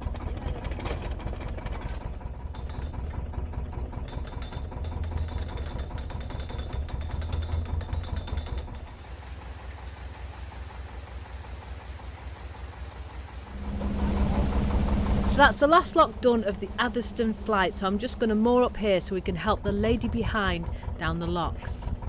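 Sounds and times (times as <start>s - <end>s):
diesel engine idling: 8.8s - 22.0s.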